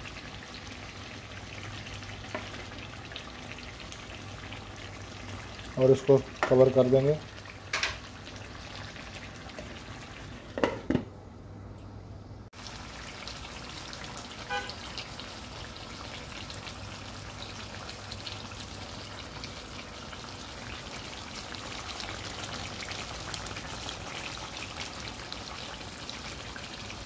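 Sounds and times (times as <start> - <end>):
chicken sizzling in frying pan: 12.6 - 27.0.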